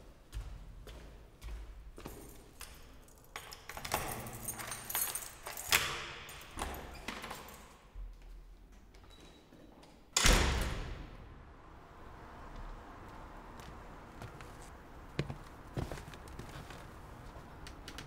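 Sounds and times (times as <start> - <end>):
keys jangling: 2.0 - 7.9.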